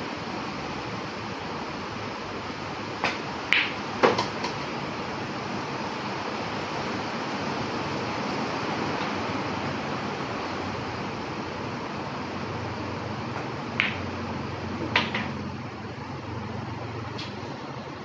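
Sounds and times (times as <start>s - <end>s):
cue tip tapping cue ball: 3.0s - 4.6s, 13.3s - 14.1s, 14.8s - 15.4s
ball dropping into pocket: 3.0s - 4.7s, 13.4s - 14.1s, 14.8s - 15.4s
billiard balls clacking: 3.0s - 4.7s, 13.3s - 14.1s, 14.8s - 15.5s.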